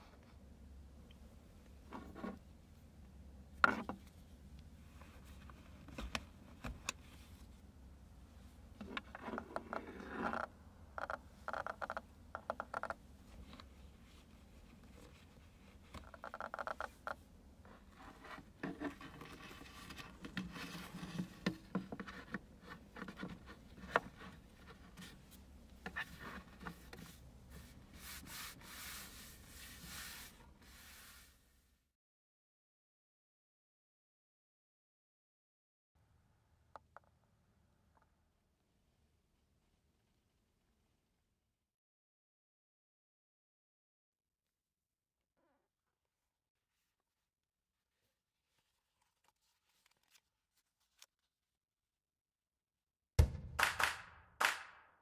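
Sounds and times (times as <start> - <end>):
rubbing and scraping on fabric: 17.6 - 31.6.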